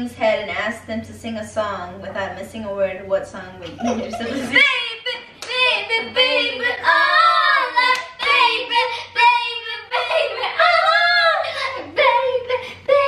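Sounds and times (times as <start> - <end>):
girls singing: 4.2 - 13.0.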